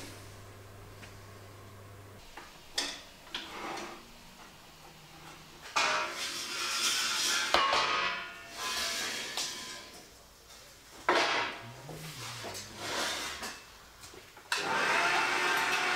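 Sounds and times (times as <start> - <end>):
steel tubes scraping along rack: 3.3 - 4.2, 4.9 - 10.1, 11.2 - 13.8.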